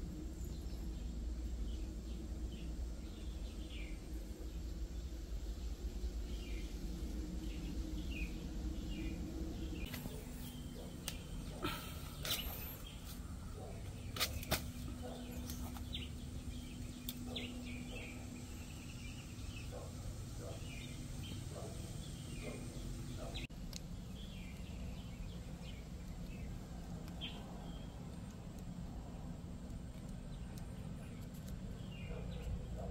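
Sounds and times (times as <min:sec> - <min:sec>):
outdoor background hum: 0:00.0 - 0:32.9
small birds chirping: 0:00.2 - 0:32.9.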